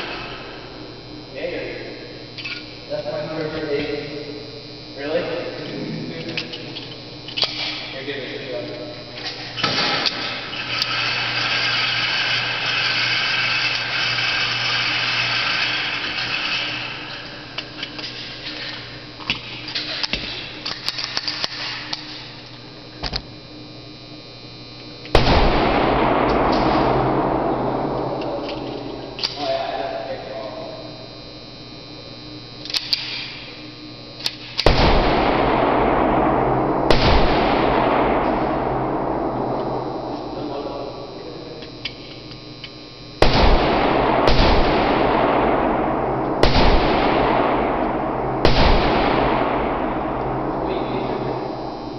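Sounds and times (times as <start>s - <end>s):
gunshots: 0.0s - 2.0s, 5.0s - 22.2s, 25.1s - 30.8s, 34.3s - 42.0s, 43.2s - 51.9s
loud steady rushing noise: 7.8s - 19.2s, 25.2s - 30.9s, 34.6s - 41.6s, 43.2s - 51.9s.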